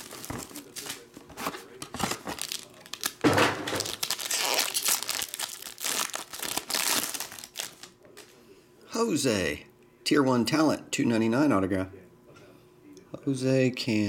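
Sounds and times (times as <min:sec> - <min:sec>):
foil pack crinkling and tearing: 0:00.0 - 0:08.0.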